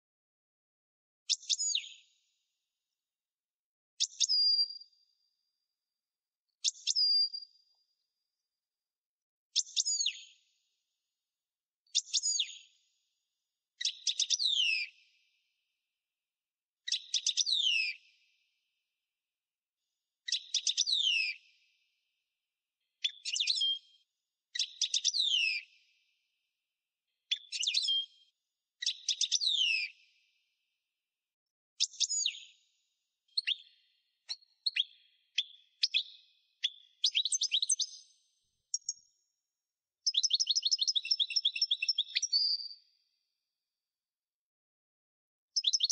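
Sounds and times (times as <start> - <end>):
songbird singing: 33.3 - 38.1, 40.0 - 42.7, 45.6 - 45.9.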